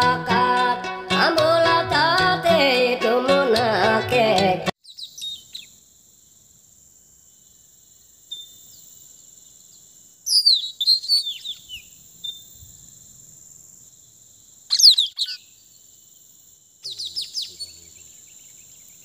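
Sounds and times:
parrots giving sharp high calls: 14.7s - 15.5s.

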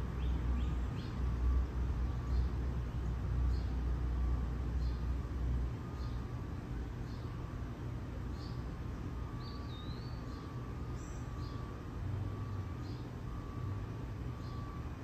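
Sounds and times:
faint bird chirps: 8.3s - 13.7s, 14.3s - 14.9s.

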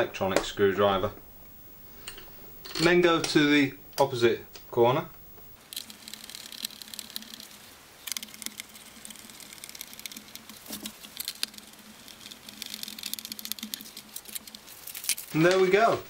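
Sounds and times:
screwdriver clicking and scratching: 5.7s - 15.3s.

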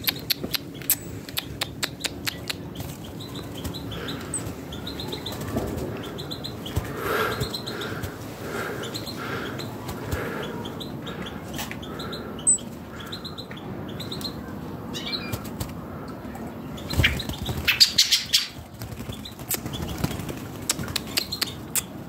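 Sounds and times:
bird chirping: 0.0s - 15.6s, 16.6s - 22.0s
wing flaps: 2.6s - 8.7s, 16.8s - 21.2s.

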